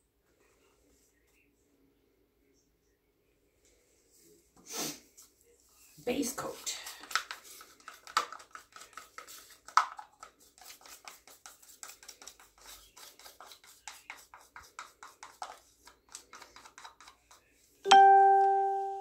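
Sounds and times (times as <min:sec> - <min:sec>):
plastic cup clicking and rubbing: 0:06.6 - 0:17.5.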